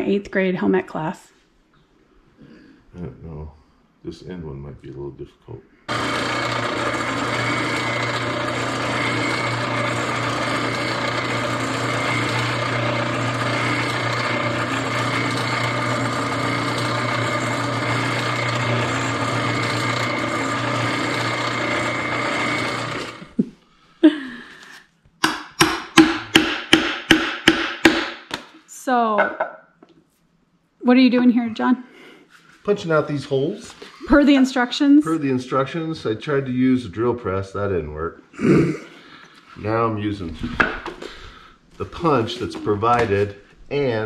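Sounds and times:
drill press running: 5.9 - 23.4
hammer striking hole punch: 25.2 - 28.4.

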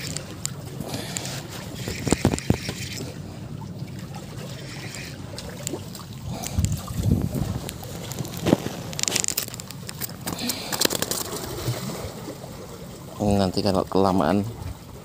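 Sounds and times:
water lapping against concrete: 0.0 - 15.0
wind on microphone: 6.2 - 8.8.

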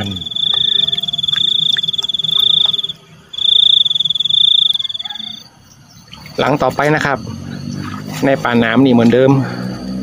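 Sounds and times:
cricket trilling: 0.0 - 10.0.

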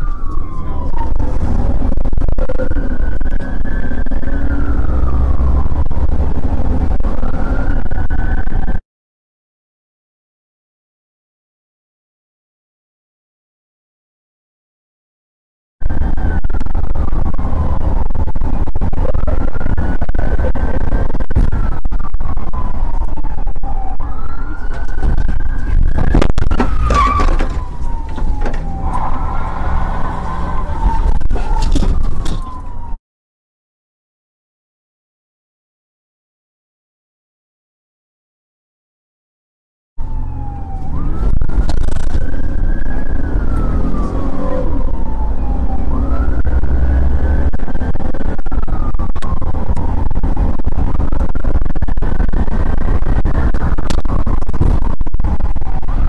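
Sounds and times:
engine and road rumble: 0.0 - 8.8, 15.8 - 33.0, 40.0 - 56.0
police siren wailing: 0.0 - 8.8, 15.8 - 33.0, 40.0 - 56.0.

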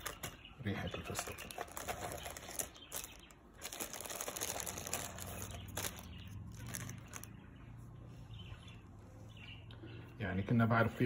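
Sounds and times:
plastic liner crinkling: 0.0 - 7.4.

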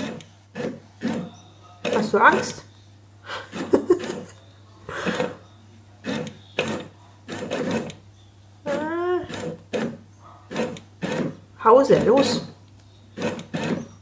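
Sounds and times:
motorized toy mechanical bursts: 8.7 - 11.4, 13.2 - 13.9.

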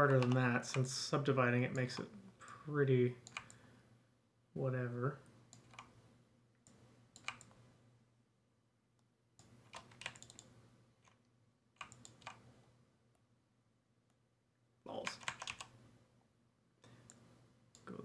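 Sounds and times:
mouse clicks: 11.8 - 12.4.

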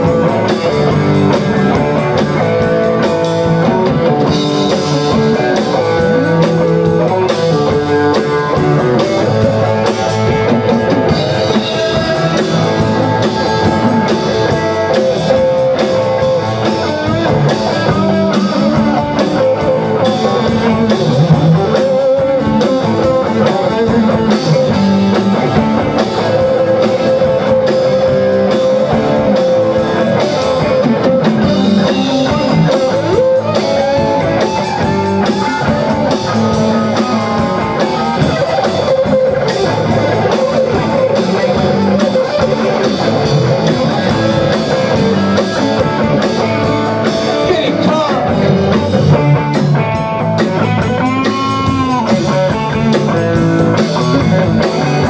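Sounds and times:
drum kit: 0.0 - 55.0
electric bass: 0.0 - 55.0
electric guitars: 0.0 - 55.0.

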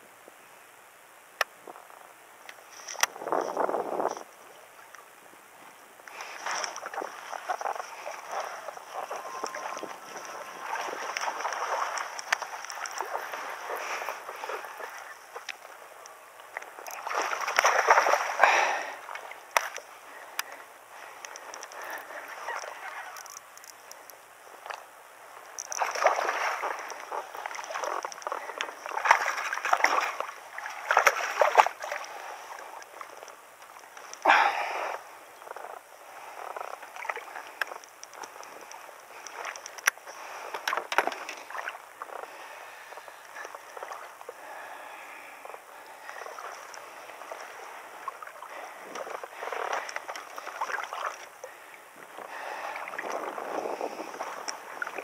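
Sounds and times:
fish splashing in water: 6.2 - 15.9, 16.5 - 20.6, 25.6 - 33.2.

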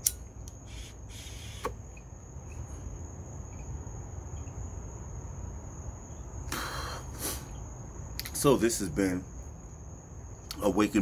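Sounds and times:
light hiss of smoke drawn in: 6.5 - 7.6.

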